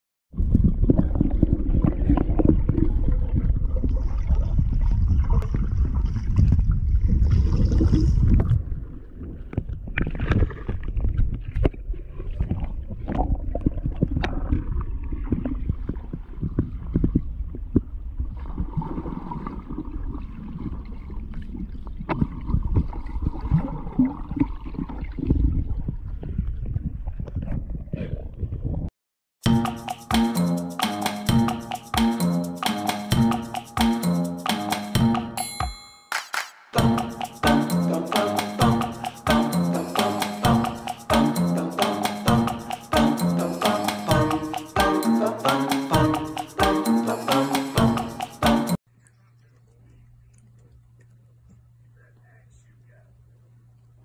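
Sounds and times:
muffled churning underwater: 0:00.3 - 0:28.6.

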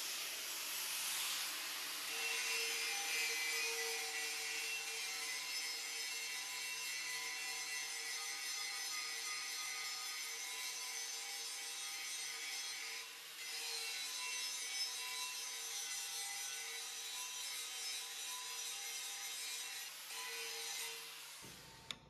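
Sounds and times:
angle grinder grinding metal: 0:01.0 - 0:22.0.

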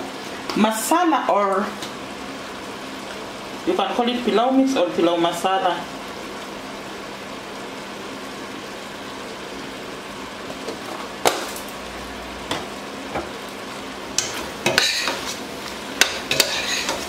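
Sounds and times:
pot simmering with low hiss: 0:00.0 - 0:17.0
metal spoon stirring: 0:14.2 - 0:15.4, 0:16.0 - 0:17.0.

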